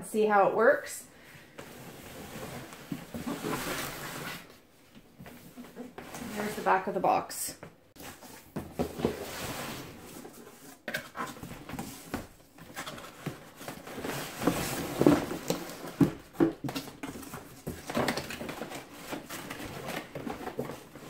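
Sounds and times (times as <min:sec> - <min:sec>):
cardboard scraping on wooden table: 0:01.6 - 0:04.5.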